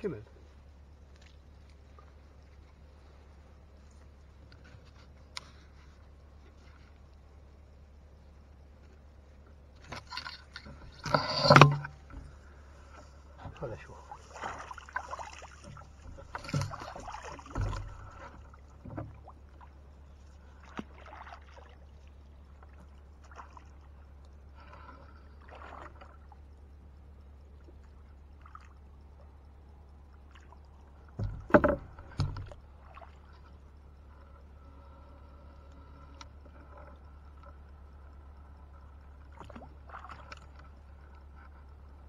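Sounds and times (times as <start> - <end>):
light water splashes: 0.0 - 42.0
steady low hum: 0.0 - 42.0
thumps on boat hull: 15.6 - 19.3, 31.2 - 32.6.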